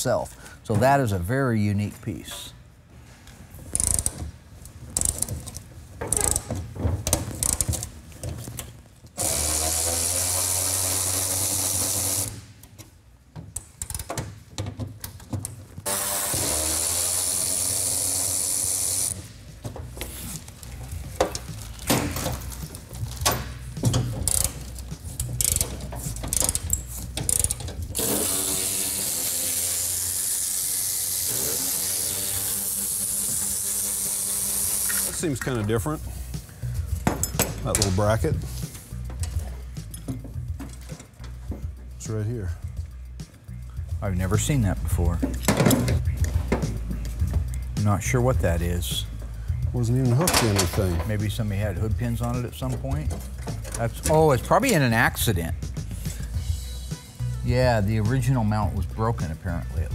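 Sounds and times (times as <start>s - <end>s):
electric ratchet running: 3.8s - 4.2s, 9.2s - 12.5s, 15.8s - 20.2s, 20.8s - 35.5s
tools clinking: 19.6s - 29.4s, 32.1s - 42.0s, 45.2s - 47.8s, 50.0s - 56.2s.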